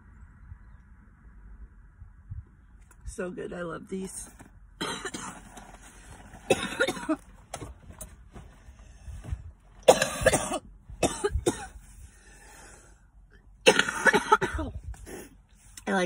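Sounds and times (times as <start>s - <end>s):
woman coughing: 4.8s - 5.4s, 6.5s - 7.2s, 9.8s - 11.8s, 13.6s - 14.8s.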